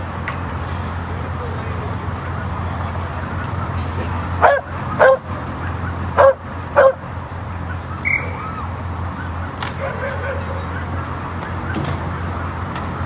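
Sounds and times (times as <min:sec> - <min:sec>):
dog barking: 0:04.4 - 0:05.3, 0:06.2 - 0:07.0, 0:09.8 - 0:10.9.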